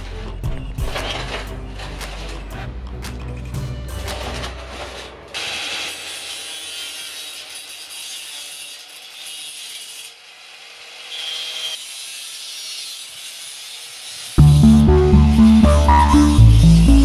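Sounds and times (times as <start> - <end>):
angle grinder grinding wire mesh: 0.0 - 17.0
high squeal of grinder: 4.7 - 17.0.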